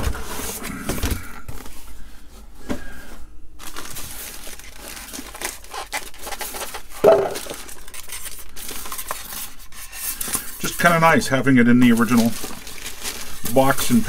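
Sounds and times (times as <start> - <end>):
plastic wrapping crinkling: 3.6 - 14.0.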